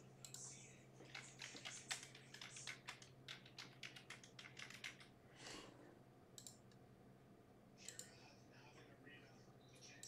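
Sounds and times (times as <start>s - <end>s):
typing on keyboard: 1.0s - 5.1s.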